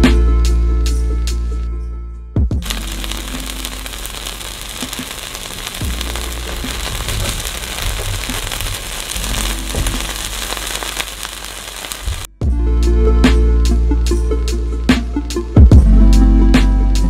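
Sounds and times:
quesadilla sizzling in a frying pan: 2.6s - 12.3s.

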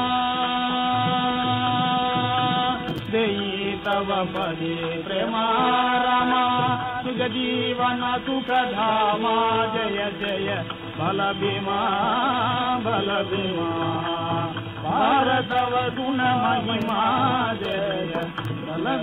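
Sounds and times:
accompaniment holding steady notes: 0.0s - 19.0s
man singing and chanting: 0.0s - 19.0s
record surface clicks: 3.8s - 4.6s, 15.2s - 18.6s.

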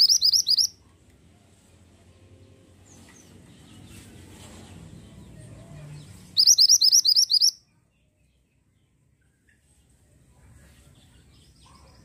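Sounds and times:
bird song sharp rising notes: 0.0s - 0.7s, 5.0s - 7.6s.

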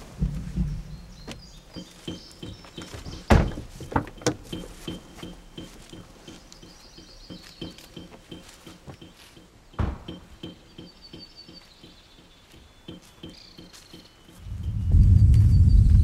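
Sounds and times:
regular high chirp: 1.0s - 15.9s
loud thunk: 3.3s - 4.4s, 9.8s - 10.4s.

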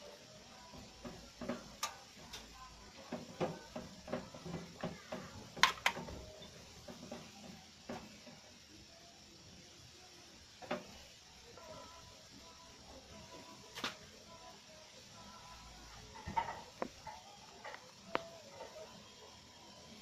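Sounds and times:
clicks and taps of plastic and metal: 3.1s - 6.2s.

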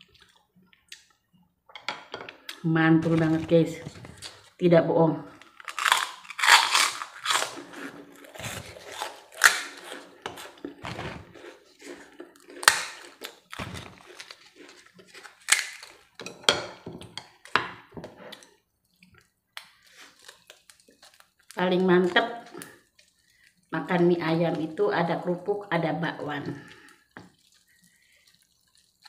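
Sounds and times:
crunching and chewing crackers: 5.3s - 16.3s, 18.3s - 23.8s, 26.6s - 29.0s.

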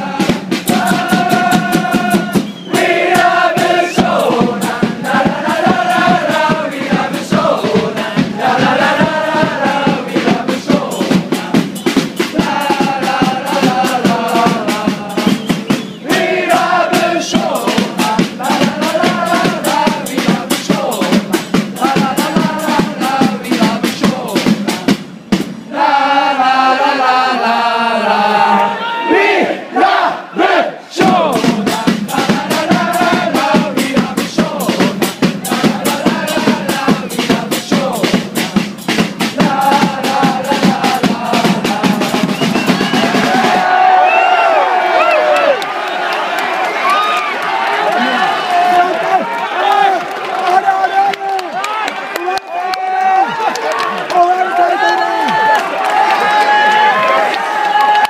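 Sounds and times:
football supporters chanting: 0.0s - 25.0s, 25.6s - 51.9s, 53.0s - 58.0s
drum beat: 0.0s - 26.7s, 31.0s - 44.0s
people clapping: 42.6s - 58.0s.

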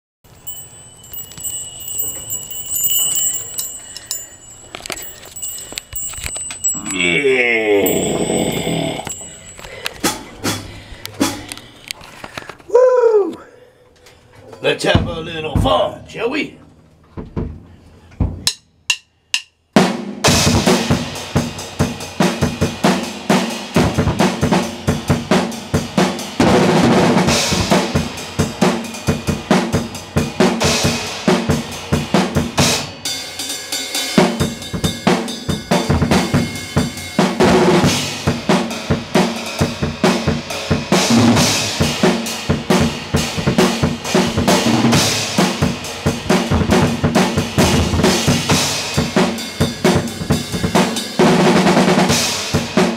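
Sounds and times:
drum kit played fast: 19.8s - 52.9s.

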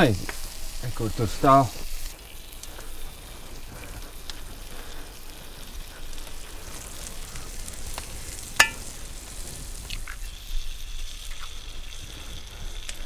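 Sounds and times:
campfire crackling: 0.0s - 13.0s
small pops: 5.9s - 10.4s.

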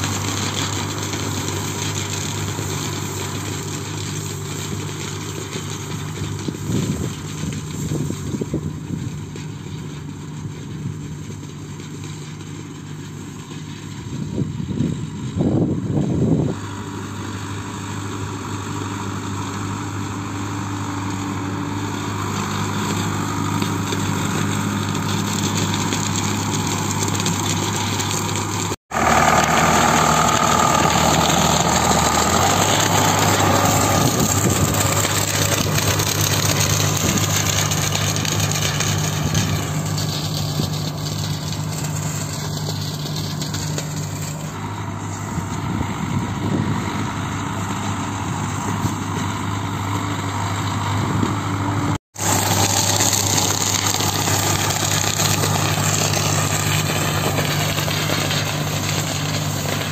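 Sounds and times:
tractor diesel engine running: 0.0s - 59.9s
rushing noise: 28.9s - 42.1s.

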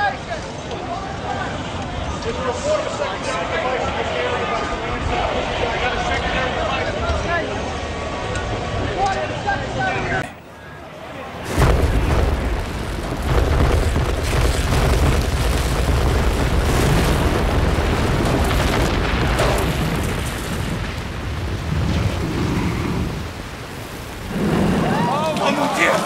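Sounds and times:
deep rumbling roar of collapse: 11.3s - 26.0s.

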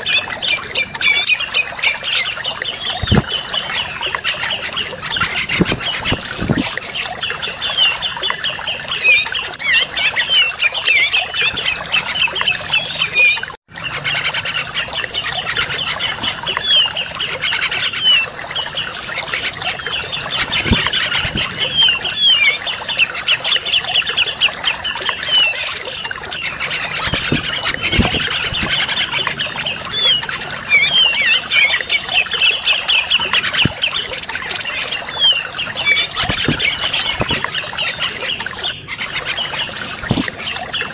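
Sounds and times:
bird chattering and chirping: 9.0s - 40.9s.

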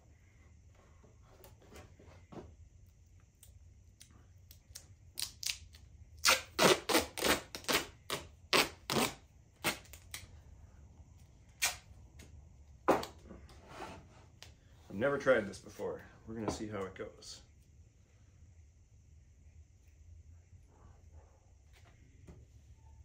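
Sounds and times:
duct tape ripping off roll: 4.7s - 10.3s, 11.6s - 11.9s.

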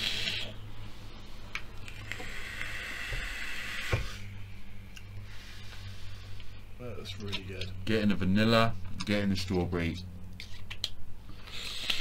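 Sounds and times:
low steady hum: 0.0s - 12.0s
vape airy hiss: 2.0s - 4.3s, 11.4s - 12.0s.

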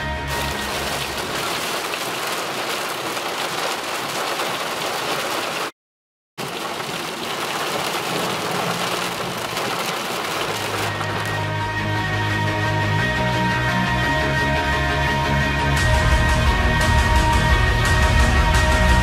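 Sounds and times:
rain on car windshield: 0.3s - 5.7s, 6.4s - 11.4s.

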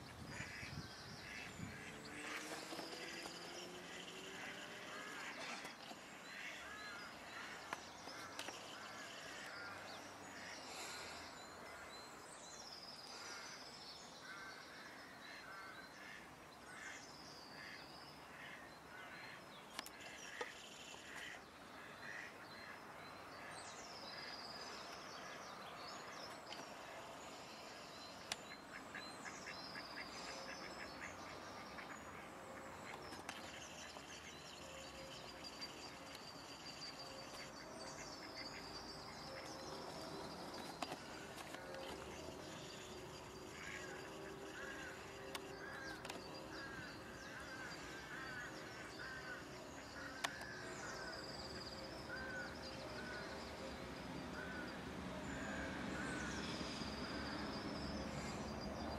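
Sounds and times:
ducks quacking softly: 0.3s - 2.4s.

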